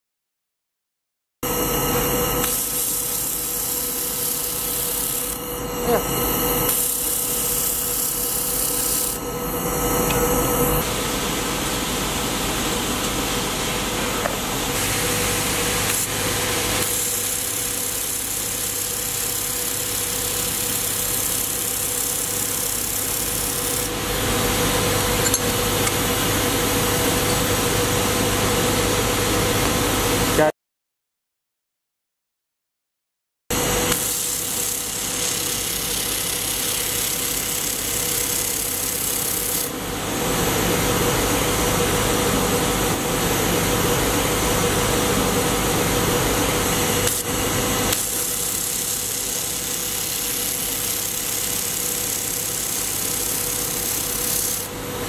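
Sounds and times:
laser welder hiss and crackle: 2.4s - 9.2s, 14.7s - 24.0s, 33.9s - 39.7s, 46.9s - 54.8s.

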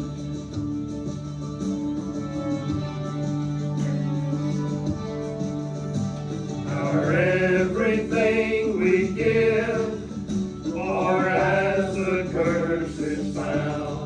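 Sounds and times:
instrumental accompaniment: 0.0s - 14.0s
person singing: 6.7s - 10.1s, 10.7s - 14.0s.

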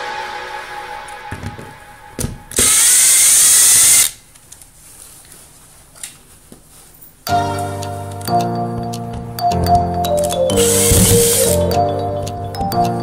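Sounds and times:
impact driver burst: 2.5s - 4.2s.

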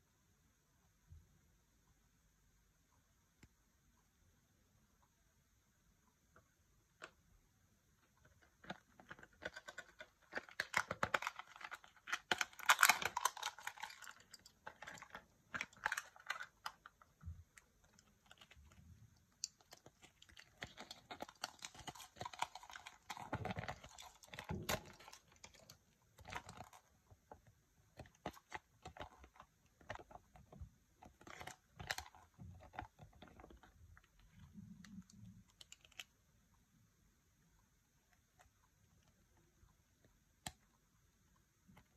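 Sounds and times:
crinkly wrapper rustling: 8.1s - 36.1s
plastic capsule clicks: 8.6s - 16.9s.

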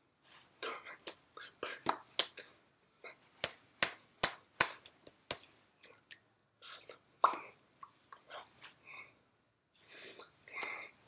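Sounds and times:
hands slapping and tapping: 1.8s - 2.4s, 3.4s - 5.6s, 7.2s - 8.0s.

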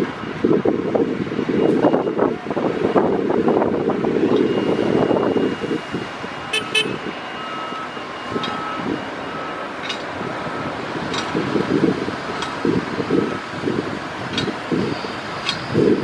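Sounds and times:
short high beeps: 6.5s - 9.6s.

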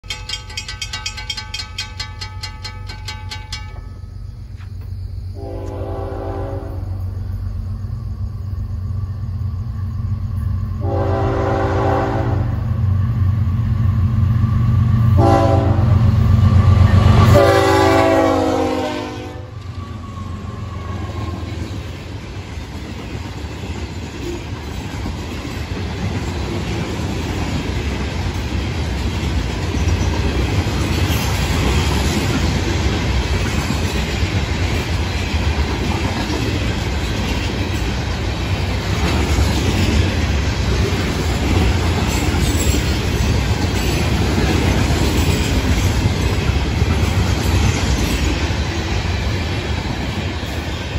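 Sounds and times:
steel wheels clattering on rails: 0.0s - 4.9s, 21.0s - 50.9s
train horn: 5.4s - 7.1s, 10.8s - 12.7s, 15.1s - 16.2s, 17.1s - 19.6s.

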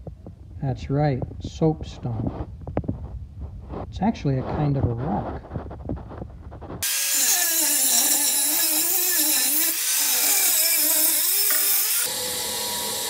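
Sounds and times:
angle grinder cutting steel pipe: 6.8s - 13.0s.

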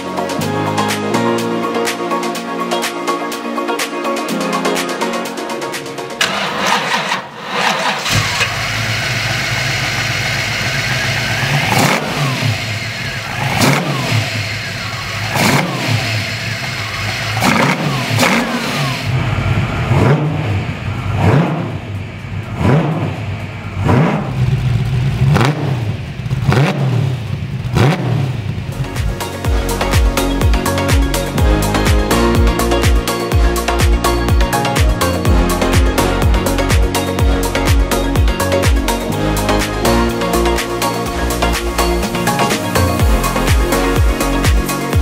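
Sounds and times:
car engine starting and idling: 5.6s - 45.0s
engine revving in throttle blips: 6.2s - 29.0s.

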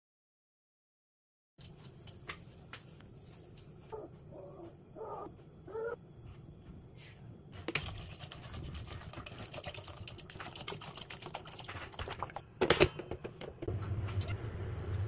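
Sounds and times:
water pouring and splashing into pot: 7.6s - 12.4s.

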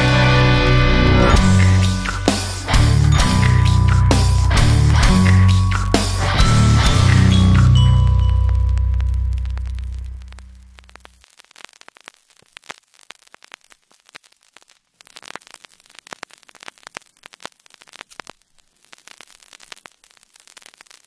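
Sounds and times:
heavy metal music note: 0.0s - 10.7s
static hiss with crackles: 0.0s - 21.0s.

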